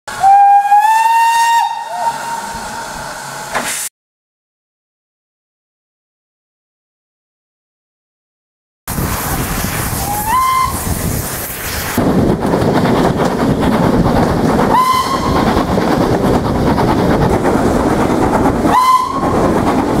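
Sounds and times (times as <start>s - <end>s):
steam whistle blasts: 0.1s - 2.8s, 10.0s - 10.9s, 14.7s - 15.4s, 18.7s - 19.3s
train carriages rumbling: 8.9s - 20.0s.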